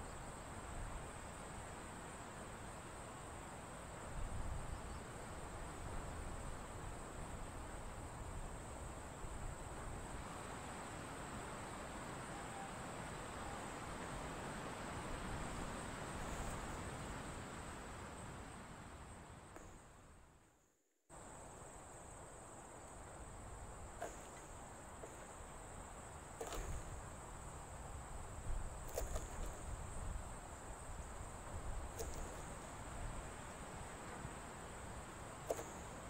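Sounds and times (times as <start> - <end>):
insects trilling: 21.1 - 36.0.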